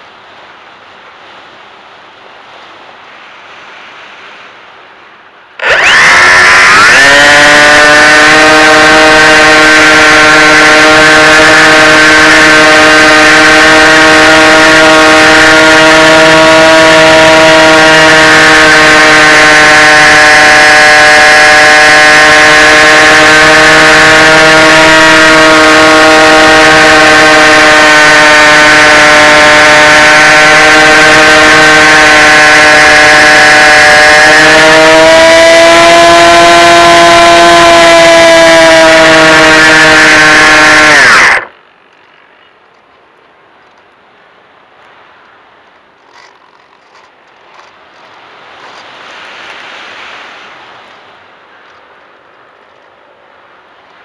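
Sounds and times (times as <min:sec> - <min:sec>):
electric motor and propeller whine: 0:05.6 - 0:42.4.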